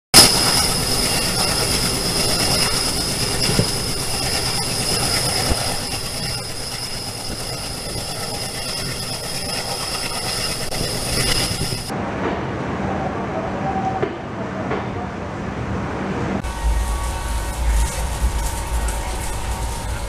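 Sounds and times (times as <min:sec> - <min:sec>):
high-pitched whine: 0:00.2 - 0:12.2, 0:16.4 - 0:20.0
train coach rumble: 0:10.6 - 0:20.0.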